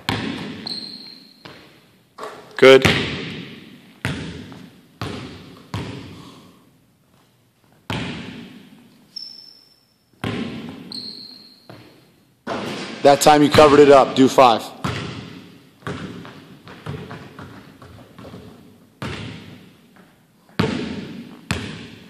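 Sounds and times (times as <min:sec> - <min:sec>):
basketball bouncing on wooden floor: 0:00.0 - 0:06.2, 0:07.9 - 0:08.8, 0:10.2 - 0:11.1, 0:14.8 - 0:22.0
short high squeaks: 0:00.6 - 0:01.5, 0:09.1 - 0:10.0, 0:10.9 - 0:11.8.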